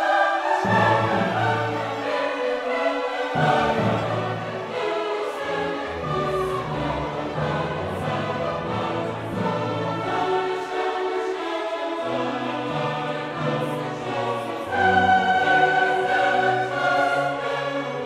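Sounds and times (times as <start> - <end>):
choir singing long held notes: 0.0 - 18.0.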